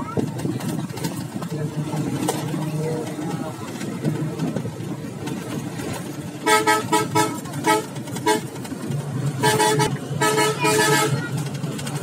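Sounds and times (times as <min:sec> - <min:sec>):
bus engine humming: 0:00.0 - 0:12.0
vehicle horn honking: 0:06.4 - 0:08.6, 0:09.4 - 0:11.4.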